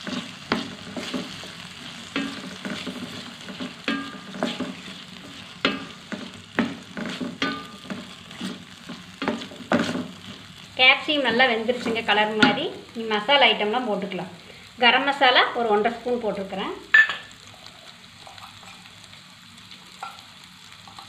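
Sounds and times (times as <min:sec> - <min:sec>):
spatula scraping metal pan: 0:00.0 - 0:10.2
vegetables sizzling in oil: 0:00.0 - 0:21.0.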